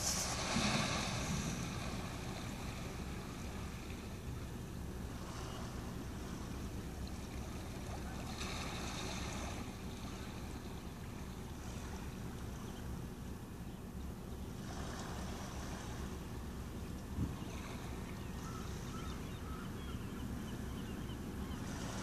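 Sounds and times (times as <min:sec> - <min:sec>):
small waves washing over rocks: 0:00.0 - 0:04.0
steady low rumble: 0:00.0 - 0:07.7.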